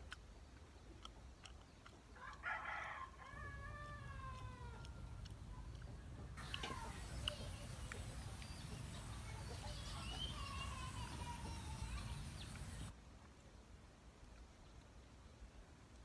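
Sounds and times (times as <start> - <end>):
bird chirps: 5.4 - 12.9.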